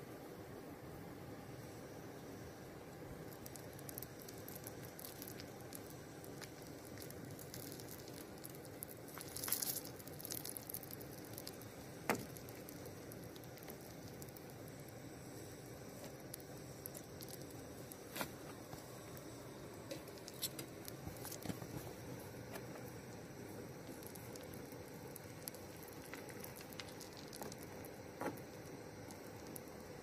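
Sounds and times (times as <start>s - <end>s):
faint crackles and ticks: 2.1s - 30.0s.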